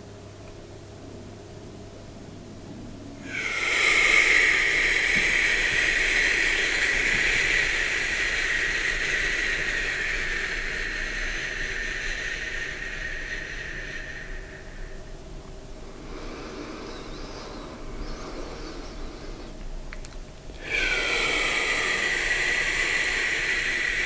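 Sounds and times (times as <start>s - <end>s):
man exhaling long breathy hiss: 3.2s - 19.6s, 20.5s - 24.0s.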